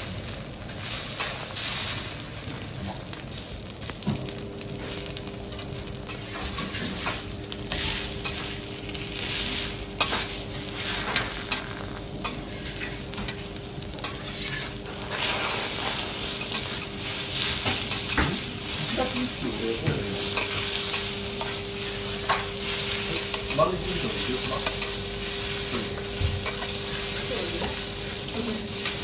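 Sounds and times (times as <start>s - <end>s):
food sizzling on griddle: 0.0s - 29.0s
metal spatulas scraping hot plate: 9.2s - 13.4s, 14.0s - 19.4s, 22.2s - 25.0s.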